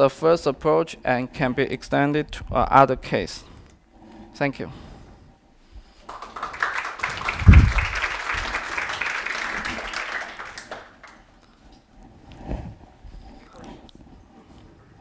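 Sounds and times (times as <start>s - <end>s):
audience applauding: 6.0s - 11.3s
low thump: 7.4s - 8.0s.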